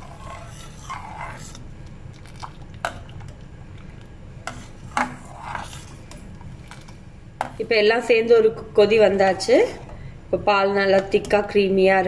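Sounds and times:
ladle stirring milk in pot: 0.0s - 7.6s.

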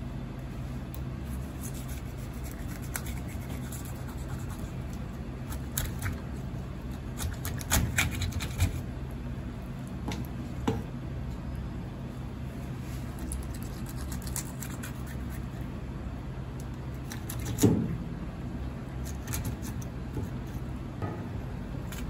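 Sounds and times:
steady low hum: 0.0s - 22.0s.

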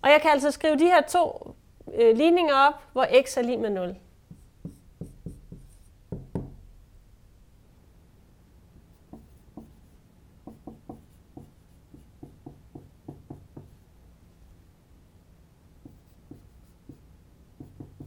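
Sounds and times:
marker tapping on whiteboard: 4.3s - 6.6s, 8.8s - 13.8s, 15.8s - 18.0s.

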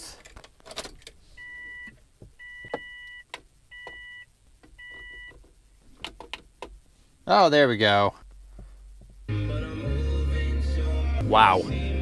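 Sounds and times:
electronic beeps: 1.4s - 5.4s.

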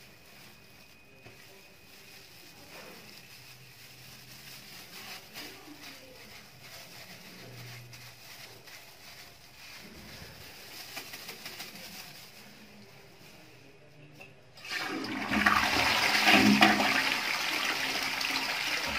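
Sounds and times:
water swishing in toilet bowl: 14.6s - 18.9s.

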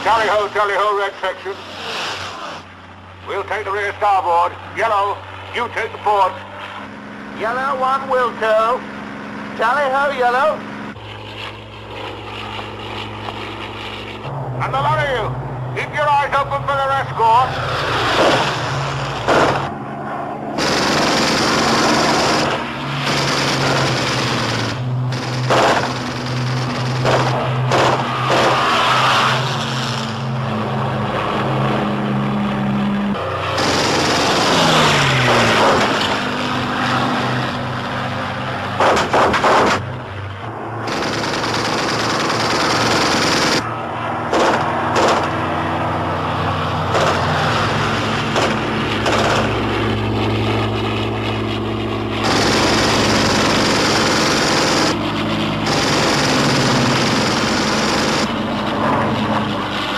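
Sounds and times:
piston aircraft engines: 0.0s - 59.9s
machine-gun fire: 19.2s - 19.7s, 20.6s - 28.7s, 33.5s - 36.3s, 38.8s - 39.9s, 40.8s - 43.6s, 44.3s - 45.4s, 46.9s - 47.5s, 48.3s - 49.6s, 52.2s - 55.0s, 55.6s - 58.3s.

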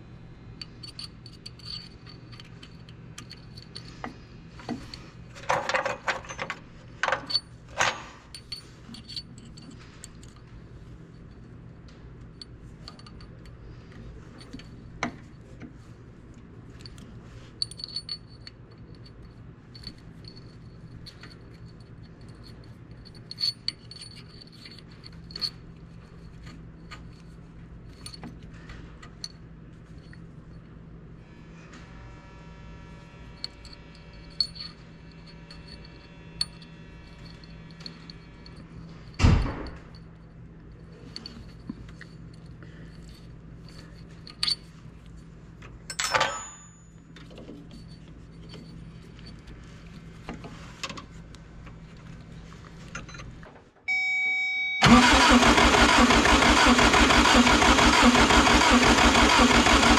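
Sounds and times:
steady low hum: 0.0s - 58.8s
metal clinks and rattles: 0.6s - 11.6s, 12.2s - 15.5s, 16.7s - 30.8s, 33.4s - 50.3s.

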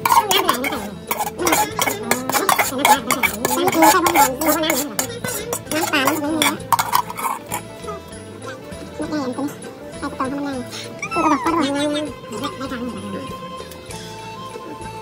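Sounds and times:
metal spoon scraping a bowl: 0.0s - 8.8s.

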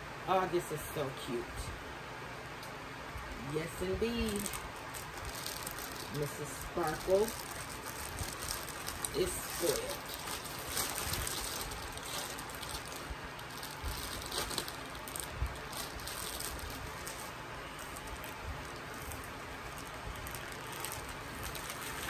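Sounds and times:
clothes and packaging rustling: 3.3s - 22.0s
small crackles and clicks: 7.0s - 22.0s.

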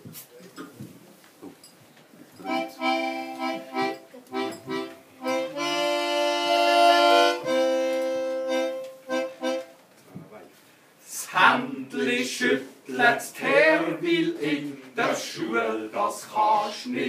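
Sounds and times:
accordion chords: 2.4s - 9.8s.

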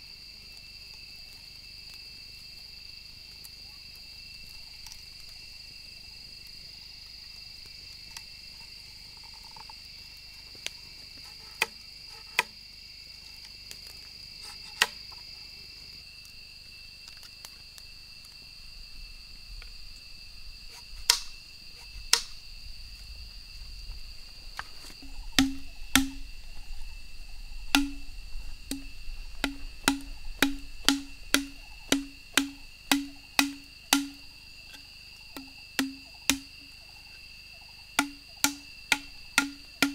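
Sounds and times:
insects trilling: 0.0s - 39.9s
machete chopping bamboo: 21.1s - 21.3s, 22.1s - 22.3s, 25.4s - 26.3s, 27.7s - 28.1s, 28.7s - 34.3s, 35.4s - 36.6s, 38.0s - 39.9s
blade knocking on bamboo: 25.0s - 26.3s, 27.7s - 28.1s, 28.7s - 34.3s, 35.4s - 36.6s, 38.0s - 39.9s.

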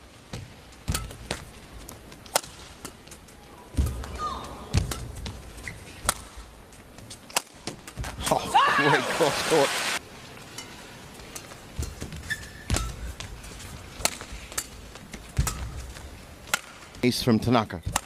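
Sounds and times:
racket hitting shuttlecock: 2.3s - 3.0s, 6.0s - 6.4s, 14.0s - 14.7s, 16.5s - 16.8s
shoe squeak: 5.6s - 6.0s, 12.1s - 13.1s.

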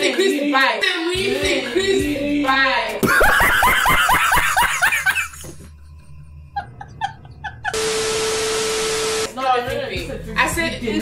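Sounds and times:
man laughing hard: 3.0s - 5.6s.

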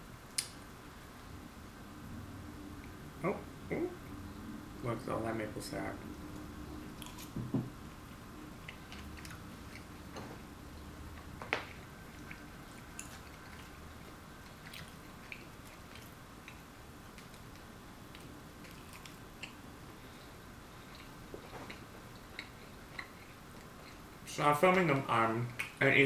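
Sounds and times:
person chewing: 6.3s - 7.4s, 8.6s - 24.3s.

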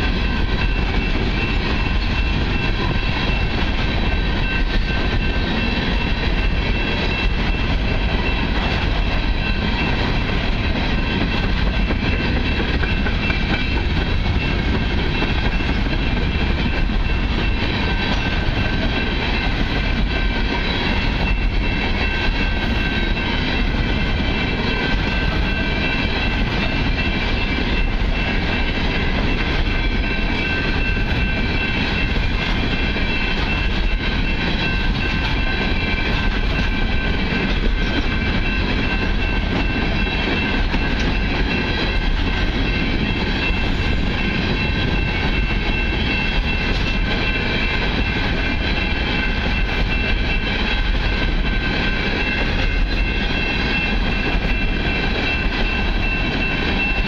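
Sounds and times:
steel train wheels rumbling on rail: 0.0s - 57.0s.

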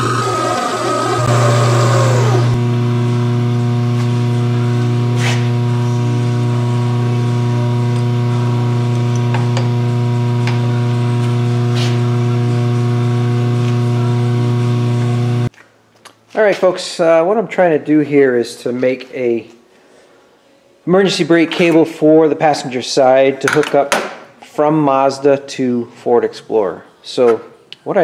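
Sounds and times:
rough cutting noise: 0.0s - 8.4s
milling machine drilling steel: 0.0s - 15.5s.

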